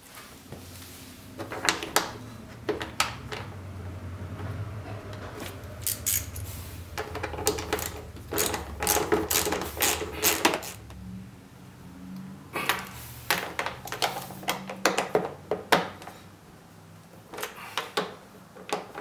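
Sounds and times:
hand ratchet clicking: 5.8s - 6.5s, 7.5s - 10.8s.

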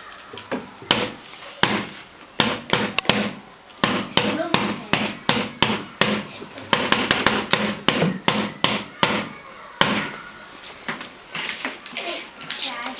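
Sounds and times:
drum beaten with mallets: 2.4s - 10.1s.

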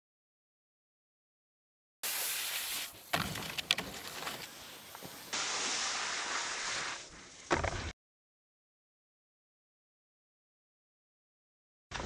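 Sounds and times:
skis sliding over snow: 2.0s - 7.9s.

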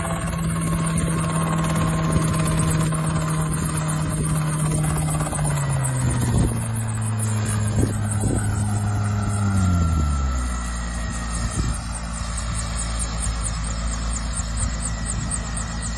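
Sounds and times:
helicopter engine and rotor: 0.0s - 15.9s.

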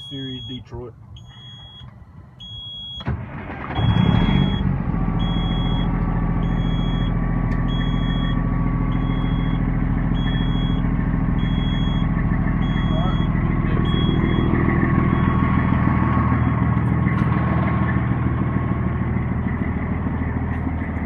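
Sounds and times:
high warning beep: 0.0s - 0.6s, 1.2s - 3.1s, 3.8s - 10.8s, 11.4s - 15.4s
diesel engine idling: 0.0s - 21.0s
truck starter cranking: 1.2s - 9.6s.

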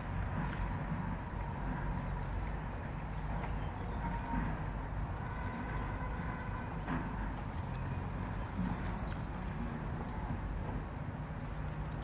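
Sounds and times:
high-pitched insect chorus: 3.0s - 6.9s.

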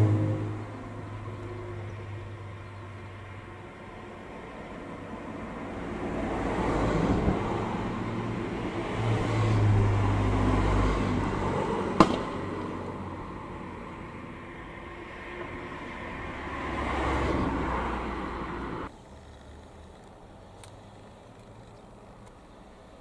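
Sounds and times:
vehicles passing: 0.0s - 23.0s
sharp crack: 12.0s - 12.9s.

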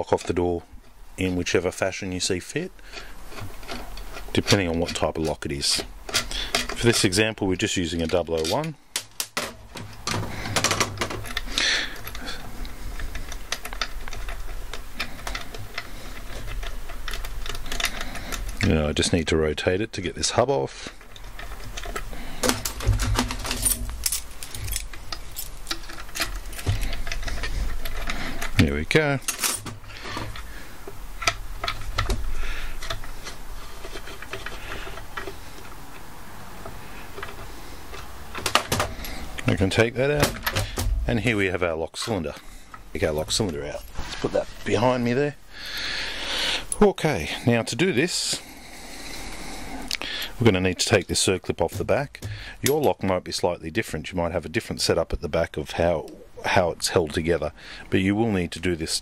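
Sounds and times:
door lock parts clicking: 21.1s - 30.5s.

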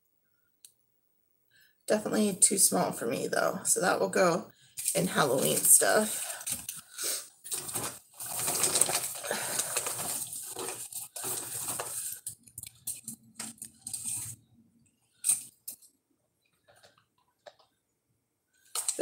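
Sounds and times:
packaging rustling: 4.8s - 14.4s.

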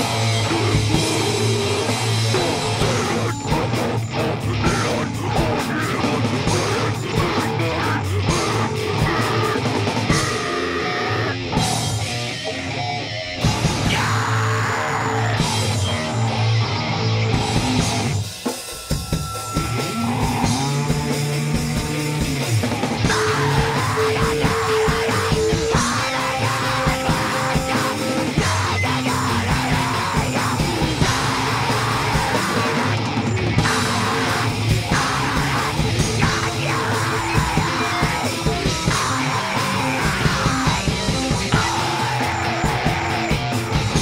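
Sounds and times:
person yelling vocals: 0.0s - 11.6s, 13.6s - 15.7s, 23.0s - 33.0s, 33.6s - 44.0s
fast drum kit: 0.0s - 12.4s, 13.3s - 44.0s
bass guitar: 0.0s - 44.0s
distorted electric guitar: 0.0s - 44.0s.

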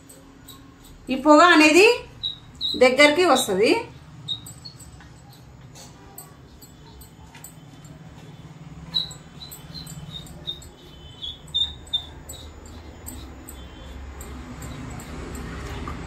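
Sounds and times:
short high squeaks: 8.8s - 14.0s.

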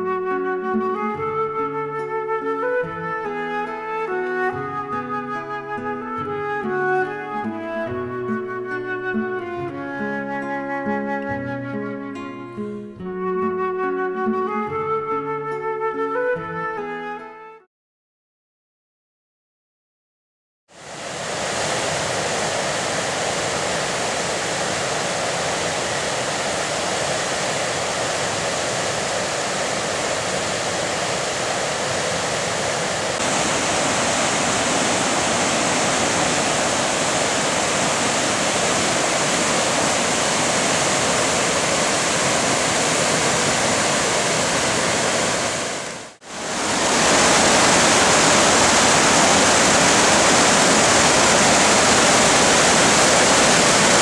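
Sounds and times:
river rapids rushing: 20.8s - 54.0s
waterfall torrent rushing: 20.8s - 54.0s.

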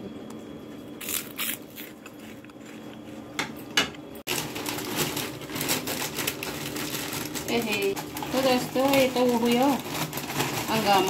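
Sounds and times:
crunching puffed rice snacks: 1.0s - 3.0s, 4.3s - 11.0s
plastic snack packet crinkling: 4.3s - 11.0s.

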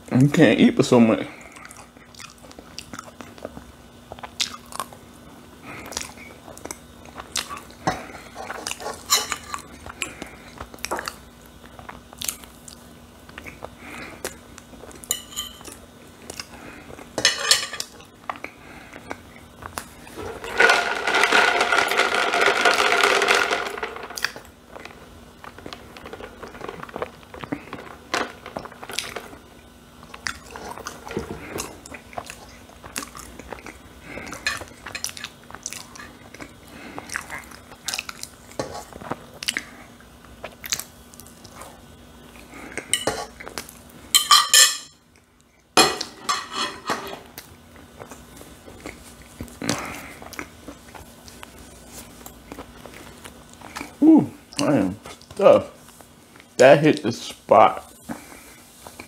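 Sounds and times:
chewing soft food: 1.4s - 17.2s, 24.2s - 44.1s, 47.2s - 56.6s.

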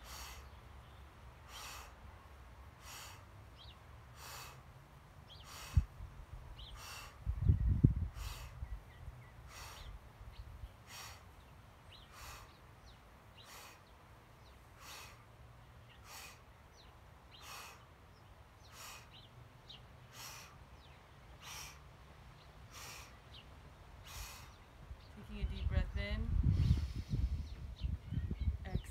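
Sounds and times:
repeating animal call: 0.0s - 0.5s, 1.5s - 2.0s, 2.8s - 3.3s, 4.2s - 4.6s, 5.3s - 5.9s, 6.6s - 7.3s, 8.1s - 8.6s, 9.5s - 10.0s, 10.8s - 11.3s, 12.1s - 12.6s, 13.4s - 13.9s, 14.8s - 15.2s, 16.0s - 16.5s, 17.4s - 17.9s, 18.6s - 19.2s, 20.1s - 20.6s, 21.4s - 21.8s, 22.7s - 23.2s, 24.0s - 24.6s
steady low rumble: 22.3s - 28.9s.

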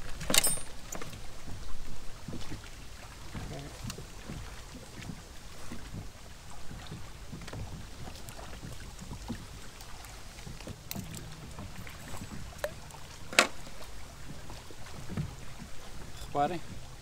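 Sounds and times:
wind rumbling on microphone: 0.0s - 17.0s
handling clicks and knocks: 0.1s - 1.2s, 10.5s - 13.7s.

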